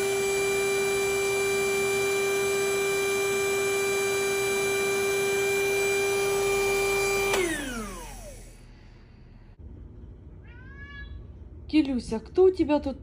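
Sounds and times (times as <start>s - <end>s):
electric air pump humming: 0.0s - 9.6s.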